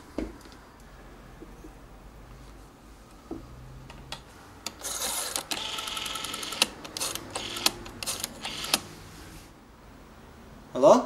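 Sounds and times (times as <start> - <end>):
rotary telephone dial whirring: 4.7 - 8.9.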